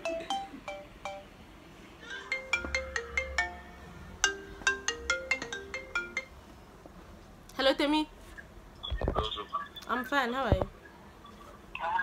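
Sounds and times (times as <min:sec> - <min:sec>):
phone ringtone melody: 0:00.0 - 0:01.4, 0:02.2 - 0:06.4.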